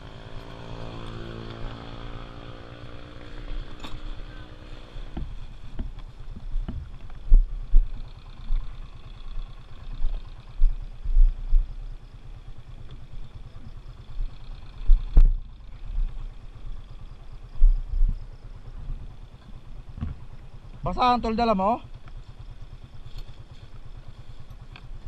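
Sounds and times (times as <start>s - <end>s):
motorcycle engine idling: 0.0s - 25.0s
heavy thumps: 5.1s - 7.9s.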